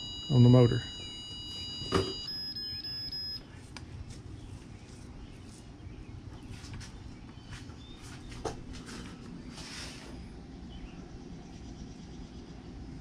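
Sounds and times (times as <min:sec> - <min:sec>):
trolling motor beeping: 0:00.0 - 0:03.4.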